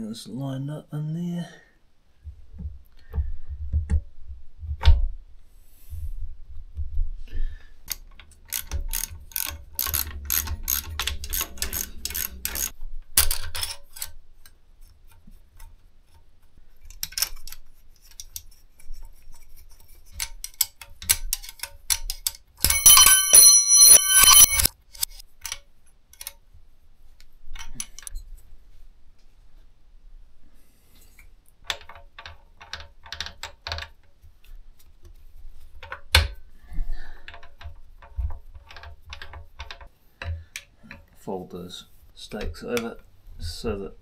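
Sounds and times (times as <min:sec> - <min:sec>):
rapid ratchet clicking: 0:07.9 - 0:12.7
metal tools clinking in gearbox: 0:08.5 - 0:12.7, 0:22.6 - 0:24.7.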